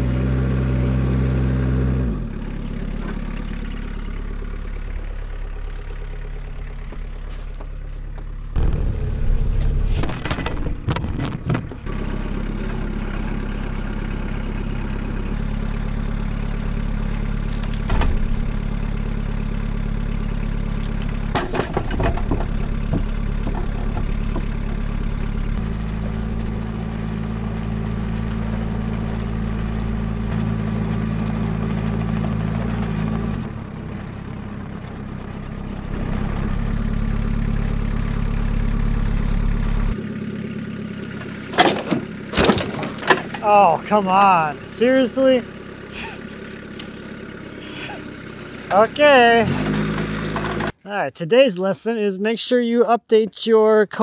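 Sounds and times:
engine running: 0:00.0 - 0:50.8
sharp knocks: 0:17.8 - 0:18.7.

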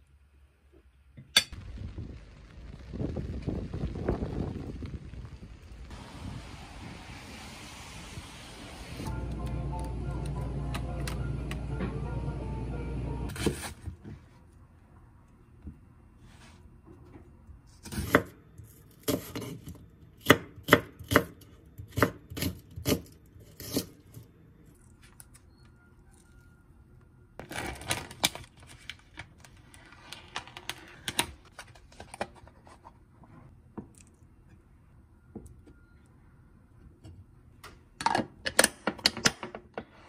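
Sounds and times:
plastic film crinkling: 0:27.4 - 0:32.0.

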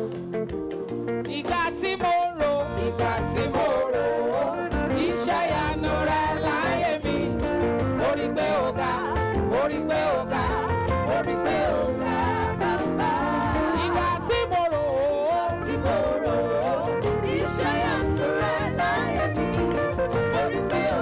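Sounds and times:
keyboard chords over a beat: 0:00.0 - 0:21.0
person singing: 0:12.7 - 0:21.0.

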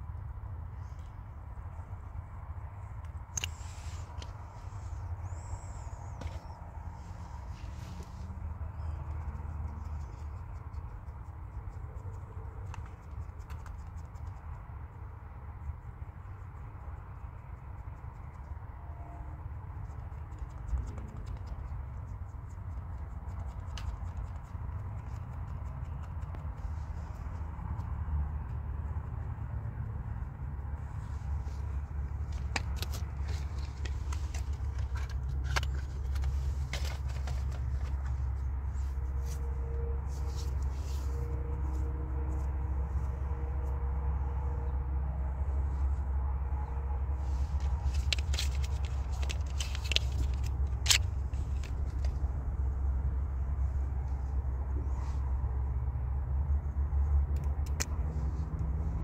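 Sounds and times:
makeup scratching and ticking: 0:03.0 - 0:18.7, 0:19.6 - 0:39.5, 0:47.2 - 0:52.8
faint clicks and rustles: 0:19.6 - 0:44.5, 0:47.0 - 0:55.7
low rumble: 0:24.8 - 0:59.0.

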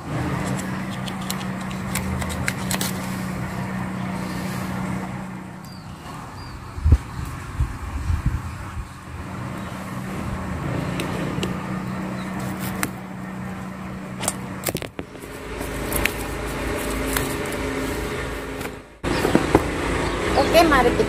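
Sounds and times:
motor-like hum: 0:00.0 - 0:21.0
knife snapping leaves: 0:00.4 - 0:03.1.

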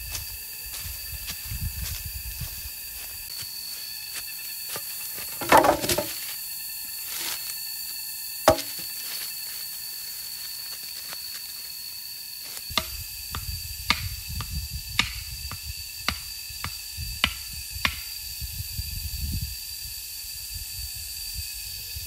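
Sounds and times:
steady high-pitched tone: 0:00.1 - 0:11.7
logs knocking together: 0:05.3 - 0:06.2, 0:08.5 - 0:08.8.

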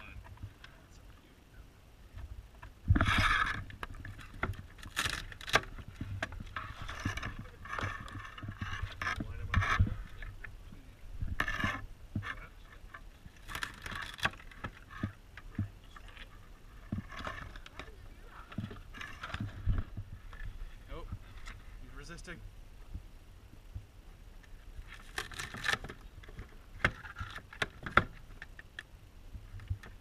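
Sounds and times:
crab shells cracking and scraping: 0:03.0 - 0:10.4, 0:13.3 - 0:15.2, 0:24.8 - 0:28.9.

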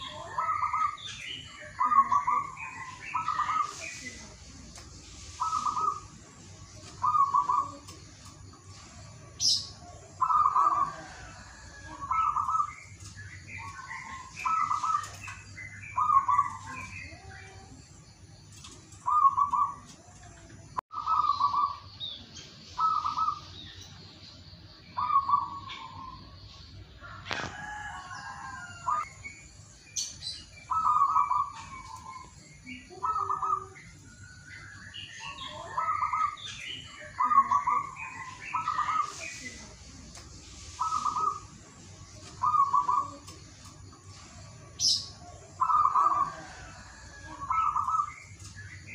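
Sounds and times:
small birds chirping: 0:00.0 - 0:48.9
dove cooing: 0:05.4 - 0:06.2, 0:07.0 - 0:08.0, 0:09.8 - 0:12.7, 0:18.6 - 0:20.2, 0:20.9 - 0:21.8, 0:22.8 - 0:23.5, 0:30.7 - 0:33.8, 0:35.6 - 0:36.4, 0:42.4 - 0:43.4, 0:45.6 - 0:48.1.

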